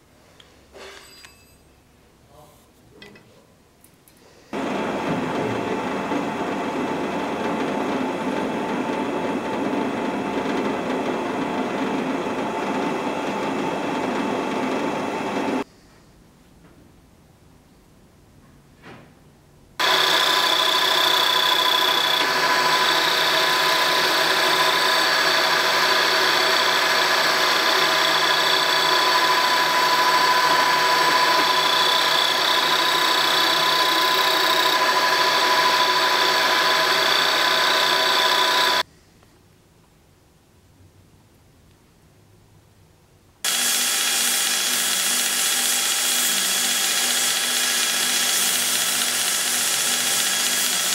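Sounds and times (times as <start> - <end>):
milling machine cutting metal: 4.6 - 15.6, 19.8 - 38.8, 43.5 - 50.9.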